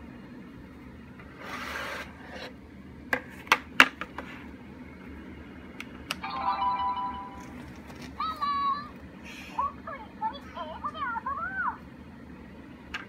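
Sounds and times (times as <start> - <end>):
plastic toy sliding on table: 1.3 - 2.5.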